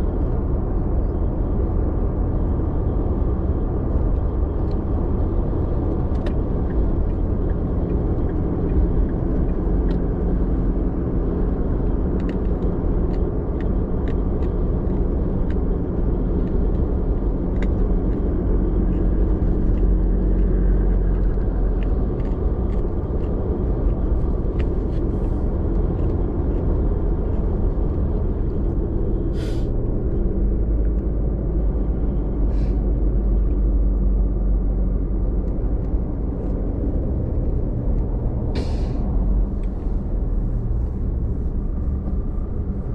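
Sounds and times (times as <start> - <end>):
car engine and road rumble: 0.0 - 42.9
brief hissing: 29.3 - 29.7, 38.6 - 39.0.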